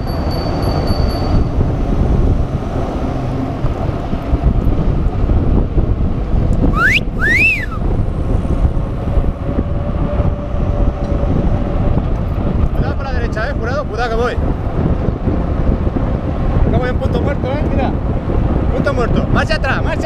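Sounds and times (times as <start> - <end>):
wind buffeting microphone: 0.0 - 20.0
two-part whistle: 6.7 - 7.8.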